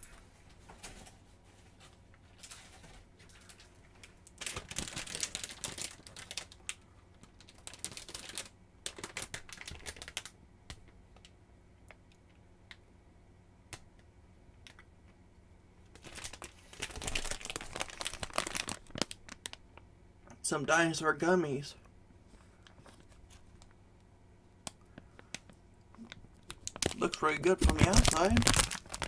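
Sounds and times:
plastic snack bag crinkling: 2.3 - 10.4, 15.9 - 19.7, 25.0 - 29.0.

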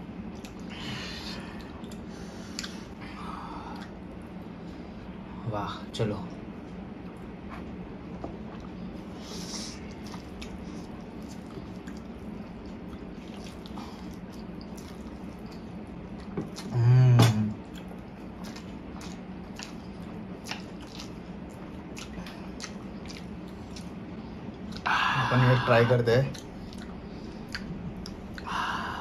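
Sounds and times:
low steady hum: 0.0 - 29.0
hummed voice: 16.6 - 17.6.

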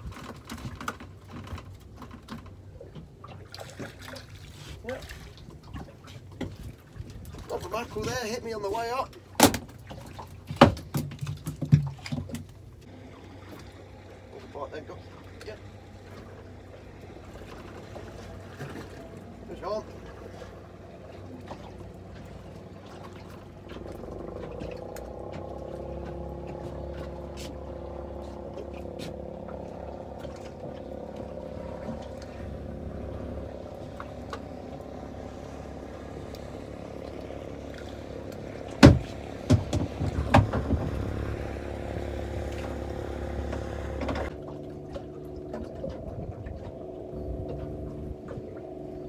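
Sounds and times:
boat engine humming: 0.0 - 49.0
sharp knocks: 38.8 - 41.2.

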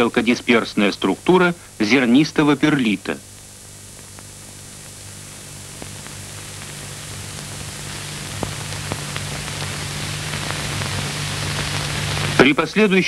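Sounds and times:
film soundtrack hiss: 0.0 - 13.0
low mains hum: 0.0 - 13.0
clicks and crackles: 4.0 - 12.4.

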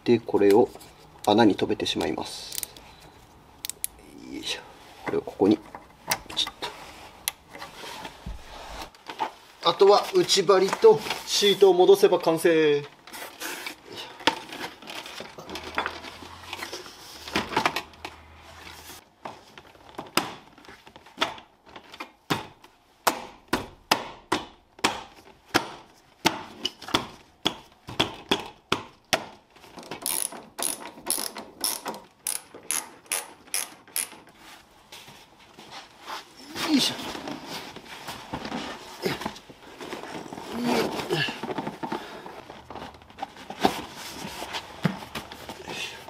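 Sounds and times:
ratchet wrench clicking: 30.1 - 34.1.

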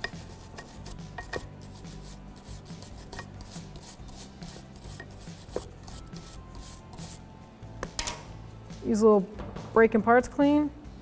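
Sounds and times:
wire brush scrubbing metal: 0.0 - 7.2.

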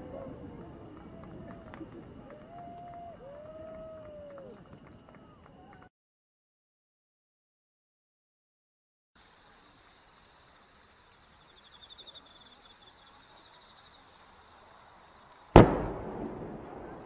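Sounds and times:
night insects trilling: 9.2 - 17.0
firework bang with echoing rumble: 15.6 - 17.0.

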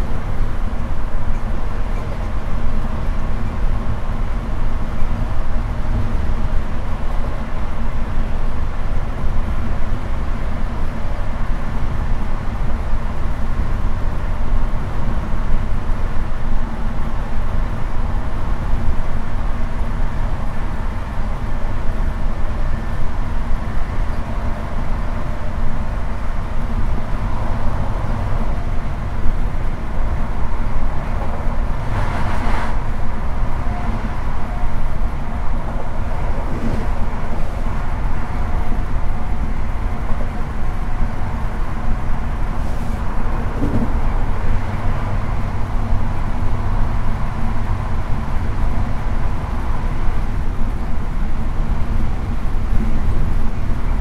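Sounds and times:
train wheels rumbling on track: 0.0 - 54.0
brief rush of noise: 31.8 - 33.0.

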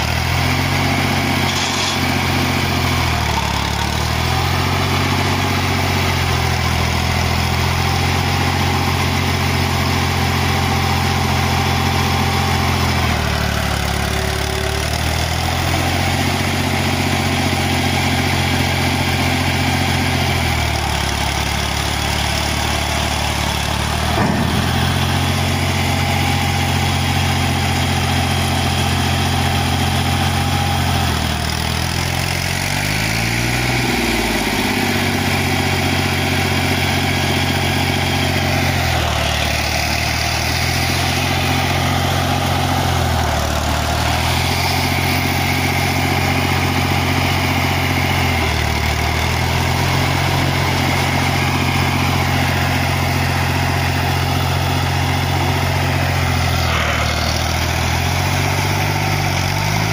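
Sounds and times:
tractor diesel engine under load: 0.0 - 59.9
sharp knock: 24.1 - 25.2.

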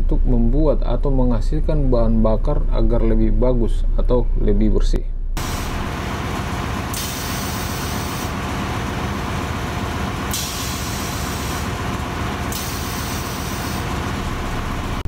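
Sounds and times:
engine-room machinery drone: 5.2 - 15.0
high hiss: 6.9 - 8.4, 10.3 - 11.7, 12.5 - 13.9.

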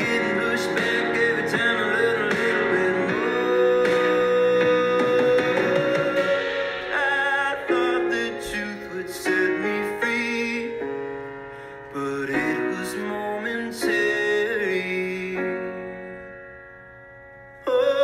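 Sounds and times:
person singing with vibrato: 0.0 - 11.1, 17.6 - 18.0
piano: 0.0 - 18.0.

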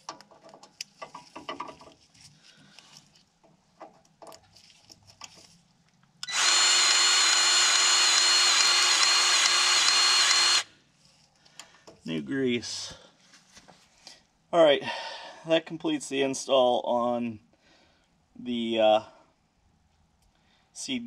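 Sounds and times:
light clicks and handling noises: 0.0 - 6.2
powered grease gun whine: 6.2 - 10.7.

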